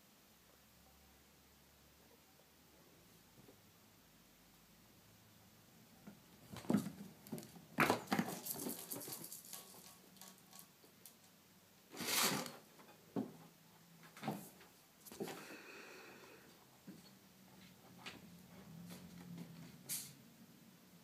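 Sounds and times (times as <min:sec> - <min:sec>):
rustling scrape on cardboard box: 0:12.0 - 0:12.5.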